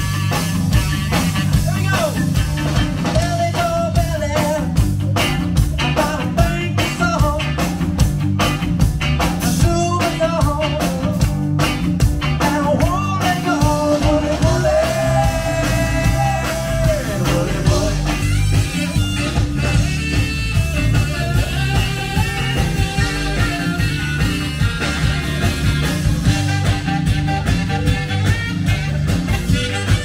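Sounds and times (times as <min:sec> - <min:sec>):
live smooth jazz band playing: 0:00.0 - 0:30.0
man singing into a microphone: 0:03.1 - 0:04.8, 0:05.8 - 0:07.6, 0:09.4 - 0:11.3, 0:12.4 - 0:18.3.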